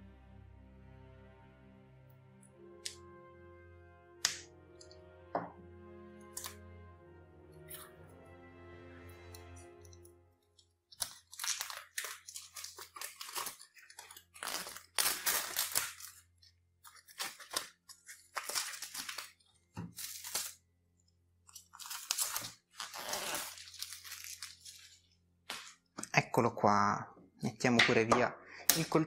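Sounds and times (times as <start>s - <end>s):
plastic shrink-wrap crinkling: 10.8s - 20.6s, 21.4s - 25.8s.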